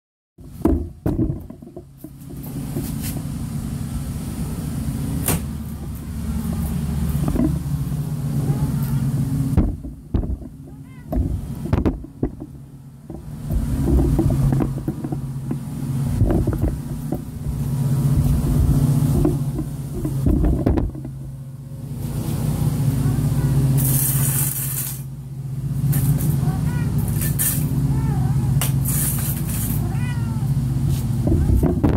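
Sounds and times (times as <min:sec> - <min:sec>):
low mechanical hum: 0:00.4 - 0:31.9
low knocks: 0:09.5 - 0:17.4.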